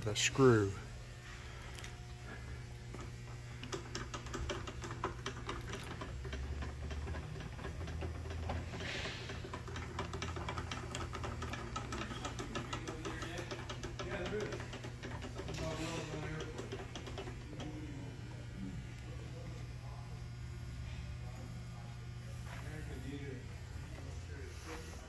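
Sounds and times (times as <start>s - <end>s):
steady low hum: 0.0s - 25.0s
hand-cranked screw mechanism clicking: 3.6s - 17.7s.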